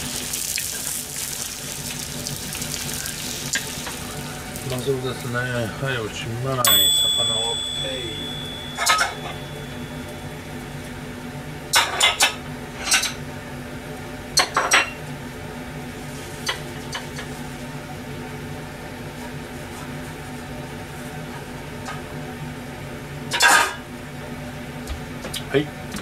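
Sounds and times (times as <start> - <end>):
steady low hum: 1.4 - 26.0
dishes and utensils clattering: 6.7 - 10.1, 11.8 - 13.2, 14.4 - 15.0, 23.3 - 23.8.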